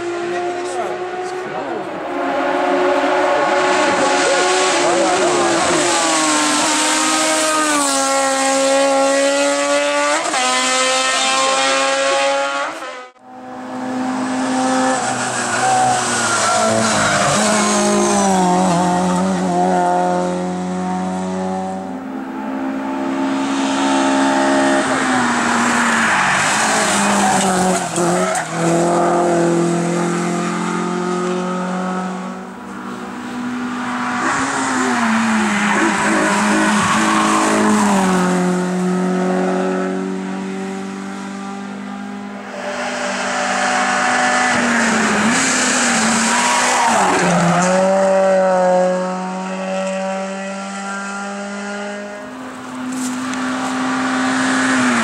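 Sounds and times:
race car engines revving: 0:00.0 - 0:55.0
tyre squeal: 0:34.0 - 0:38.0.

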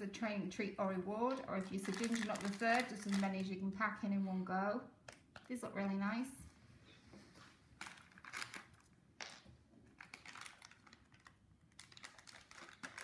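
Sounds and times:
plastic packet crinkling: 0:01.3 - 0:03.6, 0:07.8 - 0:13.0.

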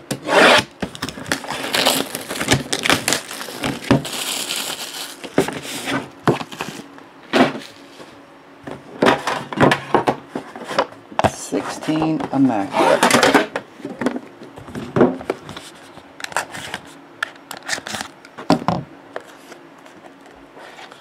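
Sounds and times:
plastic wrap crinkling and tearing: 0:00.9 - 0:06.9.

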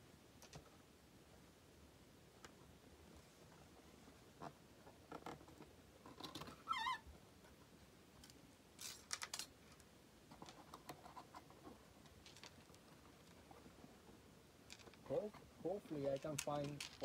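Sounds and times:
wavering squeak: 0:06.6 - 0:07.0.

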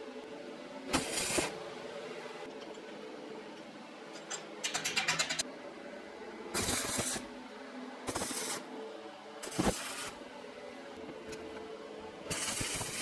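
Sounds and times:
welding arc crackling and hissing: 0:00.9 - 0:01.6, 0:06.5 - 0:07.3, 0:08.0 - 0:08.7, 0:09.4 - 0:10.2, 0:12.3 - 0:13.0.

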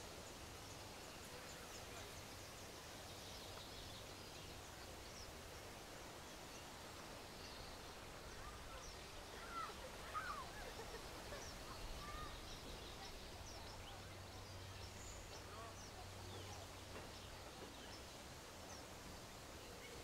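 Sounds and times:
small birds chirping faintly: 0:00.0 - 0:20.0.

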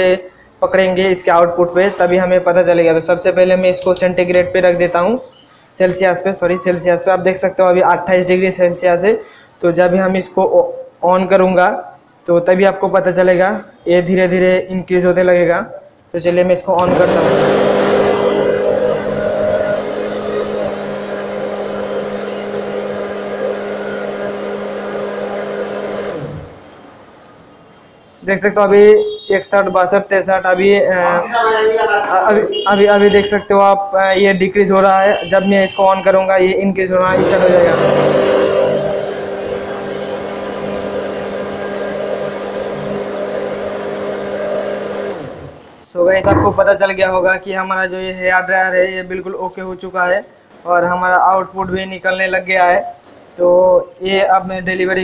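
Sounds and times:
hair dryer motor winding down: 0:16.8 - 0:26.5, 0:37.0 - 0:45.4
hair dryer running: 0:16.8 - 0:26.5, 0:37.1 - 0:45.4.

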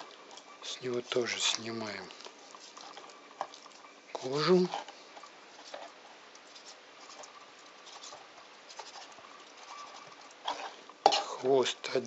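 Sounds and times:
knife scraping on cutting board: 0:05.6 - 0:11.4.

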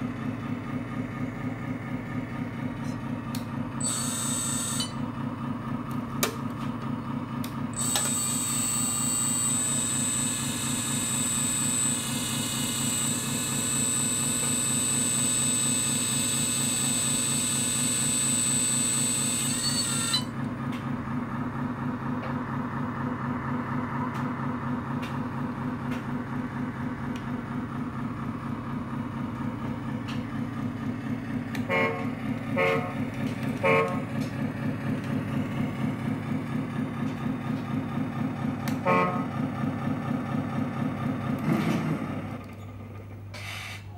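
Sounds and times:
diesel truck idling from speaker: 0:00.0 - 0:43.9
horn toots: 0:31.6 - 0:34.1, 0:38.7 - 0:39.3.

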